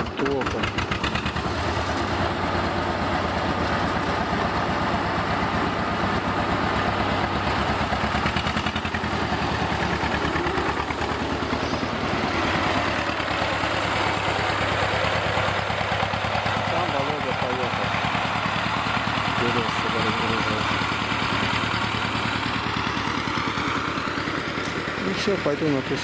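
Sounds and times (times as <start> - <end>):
small tractor engine chugging: 0.0 - 26.0.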